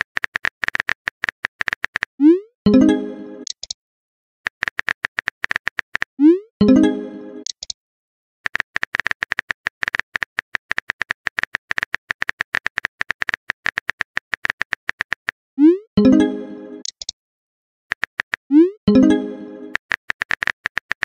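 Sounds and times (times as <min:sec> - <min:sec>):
keyboard typing clicks: 0:00.0 - 0:02.1, 0:02.7 - 0:03.8, 0:04.5 - 0:06.1, 0:07.4 - 0:07.8, 0:08.5 - 0:15.3, 0:16.8 - 0:17.2, 0:19.0 - 0:21.0.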